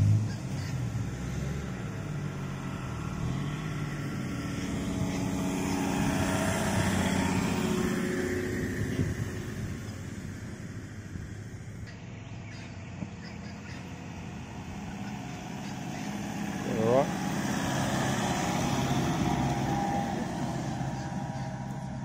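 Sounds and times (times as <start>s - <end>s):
engine revving under load: 0.0s - 22.0s.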